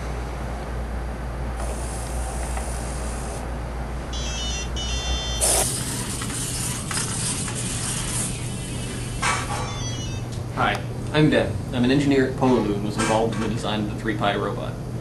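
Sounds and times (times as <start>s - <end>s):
short high beeps: 4.2s - 5.7s.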